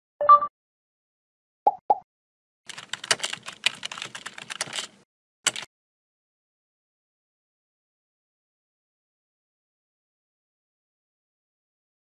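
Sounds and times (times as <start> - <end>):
keyboard key clicks: 2.7 - 5.7.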